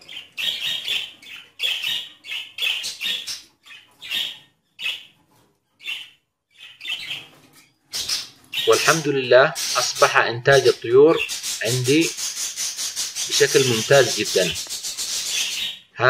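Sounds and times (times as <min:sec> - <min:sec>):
budgerigars chirping and squawking: 0:00.0 - 0:16.0.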